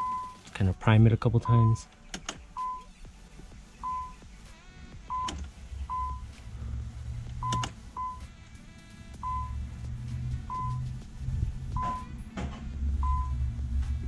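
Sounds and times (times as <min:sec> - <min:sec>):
car warning chime beeps: 0:00.0 - 0:00.4, 0:01.4 - 0:01.9, 0:02.6 - 0:02.9, 0:03.8 - 0:04.2, 0:05.1 - 0:06.3, 0:07.4 - 0:08.3, 0:09.2 - 0:09.6, 0:10.4 - 0:10.8, 0:11.7 - 0:12.2, 0:13.0 - 0:13.4
fuel pump hum: 0:00.0 - 0:00.6, 0:01.4 - 0:14.0
sharp clicks: 0:01.9 - 0:02.9, 0:07.3 - 0:07.8.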